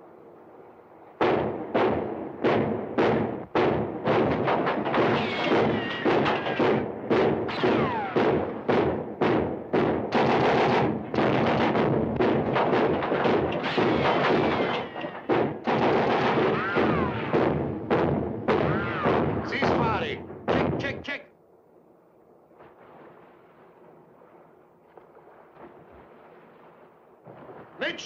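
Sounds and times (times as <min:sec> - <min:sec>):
guns firing rapidly: 0:01.8 - 0:21.1.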